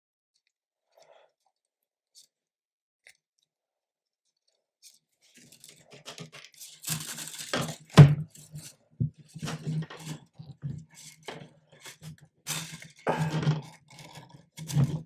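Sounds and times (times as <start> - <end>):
plastic scraping and rustling: 4.4 - 15.0.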